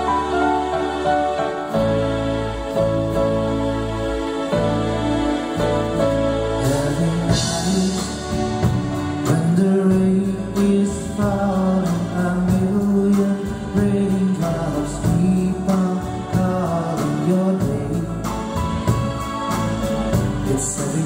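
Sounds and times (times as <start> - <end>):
bass guitar: 0.0 - 21.0
drums: 0.0 - 21.0
keyboard: 0.0 - 21.0
man singing into a microphone: 6.6 - 18.4, 20.3 - 21.0.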